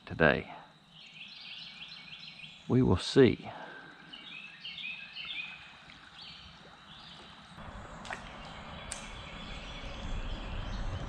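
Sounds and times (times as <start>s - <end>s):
river water: 2.7s - 11.0s
kayak paddling: 3.7s - 11.0s.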